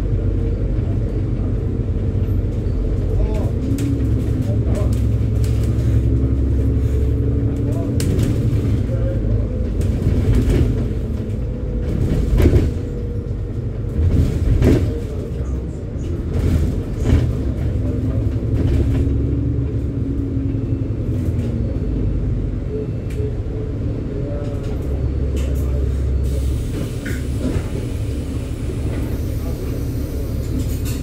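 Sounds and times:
knocks and rattles of bus body: 0.0s - 21.9s, 23.1s - 31.0s
bus engine and road rumble: 0.0s - 31.0s.

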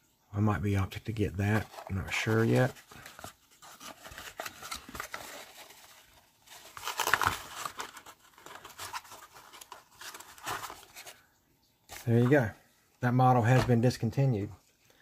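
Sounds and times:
cardboard box rustling and scraping: 1.5s - 11.1s.

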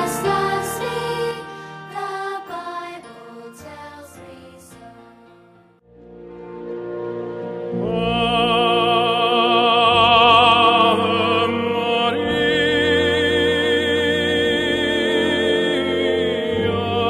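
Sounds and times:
operatic singing: 0.0s - 5.4s, 7.8s - 17.0s.

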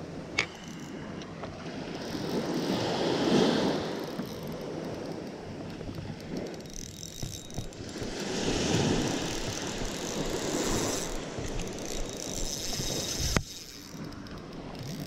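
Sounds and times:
wind on the microphone: 0.0s - 15.0s
waves washing up a sandy beach: 1.7s - 4.1s, 7.8s - 13.5s.

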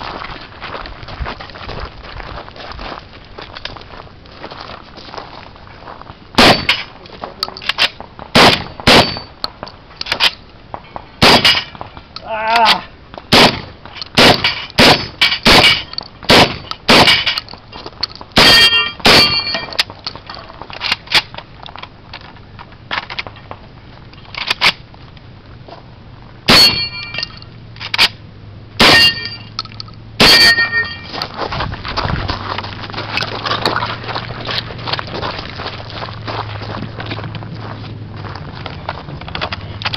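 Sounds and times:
running footsteps on gravel: 0.0s - 10.0s, 15.2s - 27.5s, 30.3s - 39.9s
rifle shots: 6.4s - 6.9s, 7.8s - 9.3s, 11.2s - 11.7s, 13.3s - 17.4s, 18.4s - 19.7s, 26.5s - 27.1s, 28.8s - 29.4s, 30.2s - 31.0s
ring of struck steel targets: 6.4s - 7.0s, 8.4s - 9.4s, 10.9s - 11.8s, 13.3s - 17.4s, 18.4s - 19.8s, 26.5s - 28.1s, 28.8s - 29.6s, 30.2s - 31.2s.

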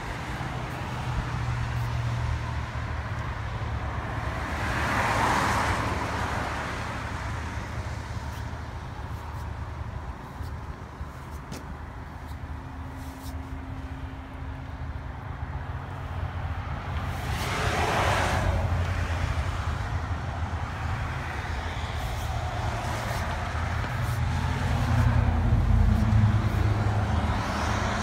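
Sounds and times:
engine rumble: 0.0s - 28.0s
low traffic rumble: 0.0s - 28.0s
vehicle passing: 15.4s - 28.0s.

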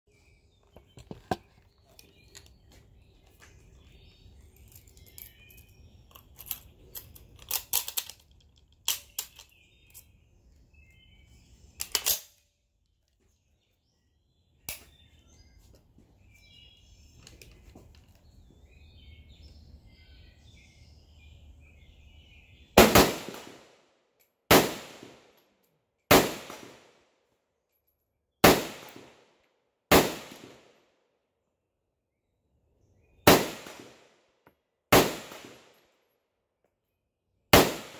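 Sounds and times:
rifle shots with echo: 22.8s - 23.8s, 24.5s - 25.3s, 26.1s - 27.0s, 28.4s - 29.2s, 29.9s - 30.8s, 33.2s - 34.1s, 34.9s - 35.8s, 37.5s - 37.9s.

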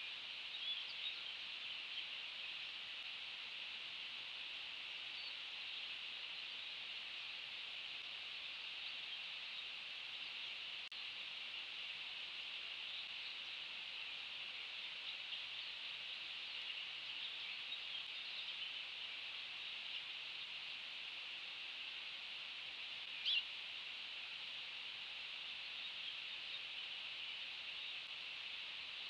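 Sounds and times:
high-pitched outdoor hiss: 0.0s - 29.0s.

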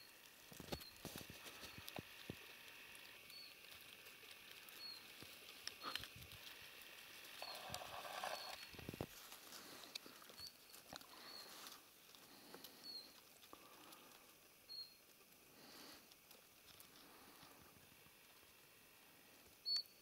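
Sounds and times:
soft rustles: 0.4s - 18.6s
faint high-pitched chirps: 3.2s - 3.7s, 4.6s - 5.2s, 7.4s - 8.8s, 10.1s - 11.8s, 12.5s - 15.0s, 19.4s - 20.0s.

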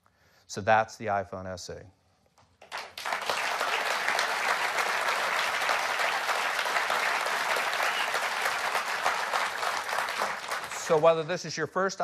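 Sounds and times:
audience applauding: 2.6s - 11.3s.

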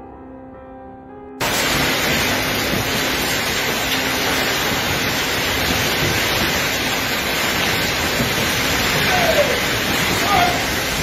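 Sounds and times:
heavy rain: 1.4s - 11.0s
storm wind: 1.4s - 11.0s.

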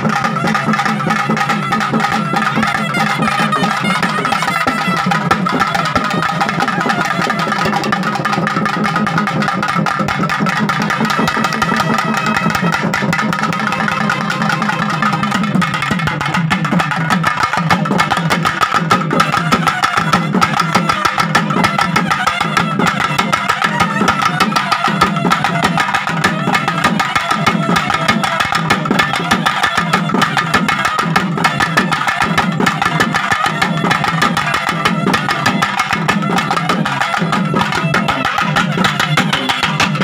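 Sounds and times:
fast continuous drumming: 0.0s - 40.0s
other instruments: 0.0s - 40.0s.

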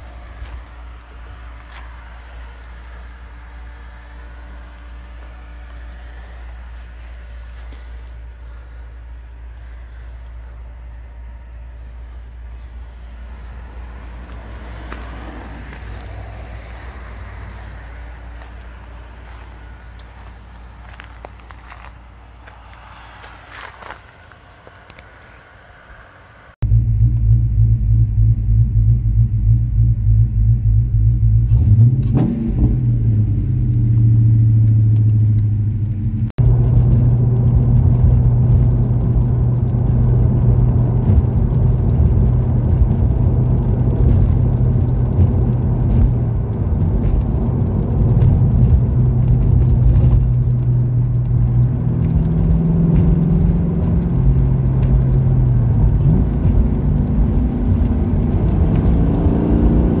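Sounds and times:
car engine revving: 0.0s - 60.0s
engine drone on the road: 0.0s - 60.0s.

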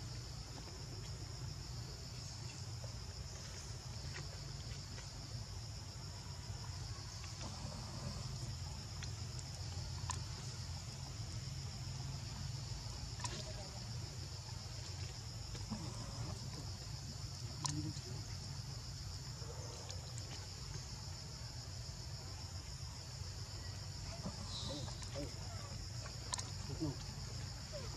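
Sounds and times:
insect chorus buzzing: 0.0s - 27.9s
faint sharp clicks: 9.0s - 10.2s, 26.2s - 26.5s.

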